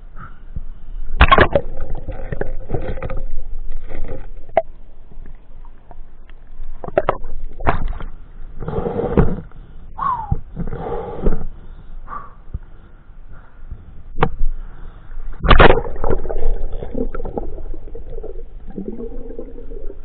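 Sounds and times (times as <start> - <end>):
water splashing and bubbling: 1.2 - 8.9, 15.4 - 20.0.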